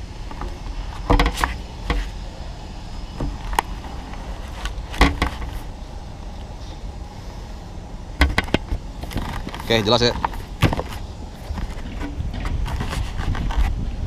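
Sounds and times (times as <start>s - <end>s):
steady low rumble: 0.0s - 14.0s
camera handling knocks and scrapes: 0.3s - 2.1s, 4.5s - 5.6s, 10.2s - 13.7s.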